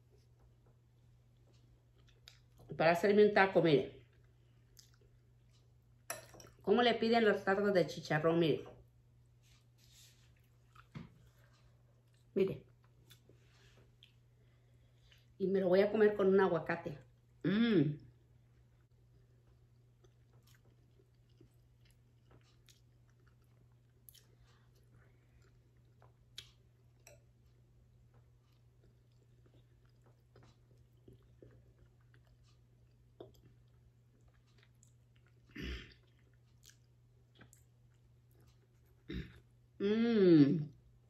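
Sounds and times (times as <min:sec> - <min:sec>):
person chewing: 0:01.0 - 0:02.7, 0:04.0 - 0:06.6, 0:09.8 - 0:15.4, 0:19.0 - 0:39.6.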